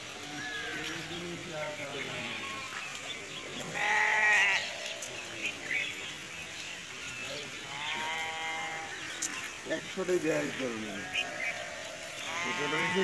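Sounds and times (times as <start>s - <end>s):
faint background noise: 0.0s - 13.0s
wavering bleat: 3.7s - 4.7s, 7.7s - 8.9s, 12.2s - 13.0s.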